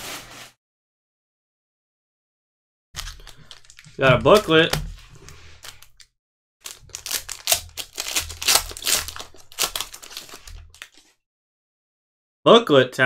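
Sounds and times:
card pack wrapper crinkling: 3.0s - 6.0s, 6.6s - 11.1s.

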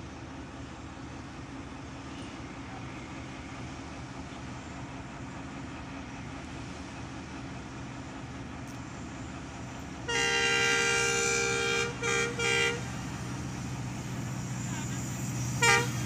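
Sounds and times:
diesel locomotive rumble: 0.0s - 16.0s
locomotive horn blasts: 10.1s - 12.9s, 15.6s - 16.0s.

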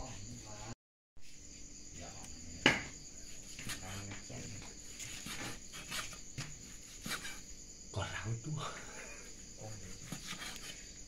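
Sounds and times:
crickets chirping: 0.0s - 11.0s
knife knocking on chopping board: 2.6s - 3.0s.

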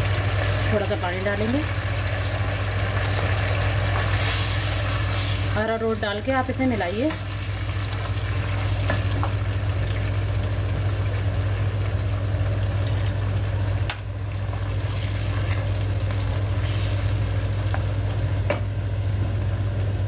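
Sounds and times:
sauce simmering: 0.0s - 20.0s
steady low hum: 0.0s - 20.0s.

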